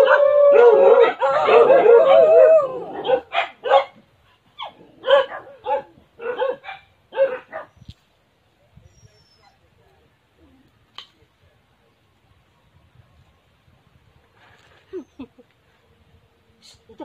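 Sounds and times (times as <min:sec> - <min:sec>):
dog barking: 0:03.0 - 0:04.0, 0:05.0 - 0:07.7.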